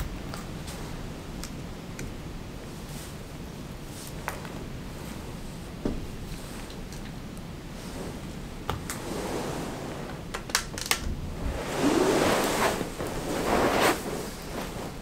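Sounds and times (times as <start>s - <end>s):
rushing noise: 11.3s - 15.0s.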